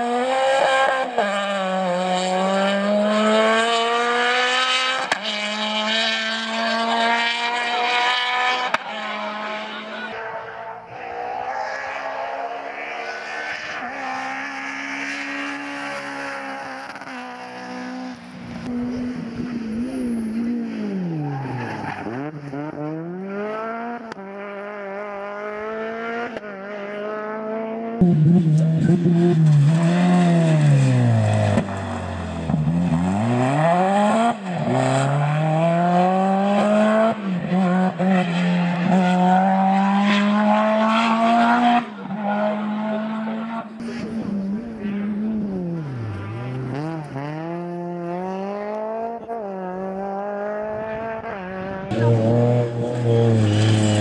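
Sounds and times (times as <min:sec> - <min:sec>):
rally car engines revving: 0:00.0 - 0:54.0.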